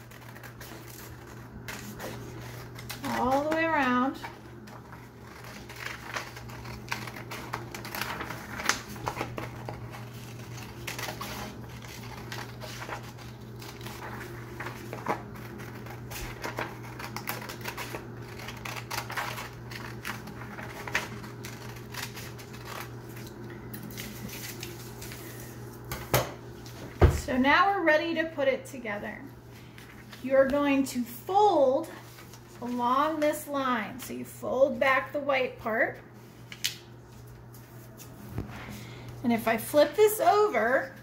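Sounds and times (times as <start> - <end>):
scissors snipping paper: 0.0 - 25.1
steady low hum: 0.0 - 41.0.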